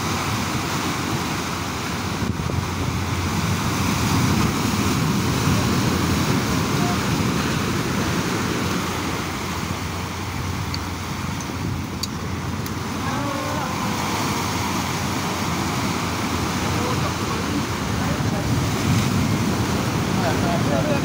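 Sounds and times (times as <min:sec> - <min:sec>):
surf breaking over rocks: 0:00.0 - 0:21.0
wind buffeting microphone: 0:00.0 - 0:21.0
faint voice: 0:13.0 - 0:13.9.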